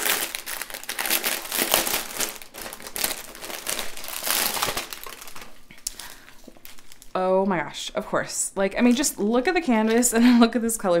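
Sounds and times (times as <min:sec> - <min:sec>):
plastic bag crinkling: 0:00.0 - 0:07.2, 0:08.8 - 0:10.2.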